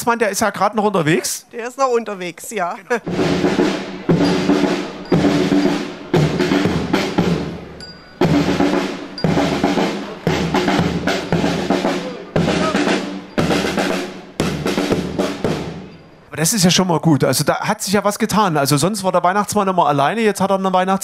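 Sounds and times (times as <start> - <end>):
snare drum rolls: 3.0 - 15.9
heavy drum strikes: 3.0 - 16.0
held band chords: 3.0 - 16.3.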